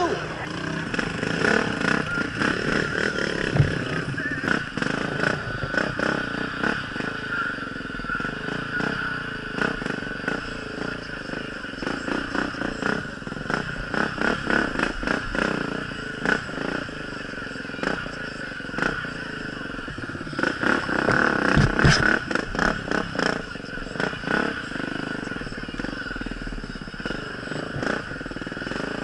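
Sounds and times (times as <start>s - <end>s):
dirt bike engine running: 0.0s - 29.0s
bike knocks and rattles: 3.2s - 6.2s, 19.8s - 23.4s.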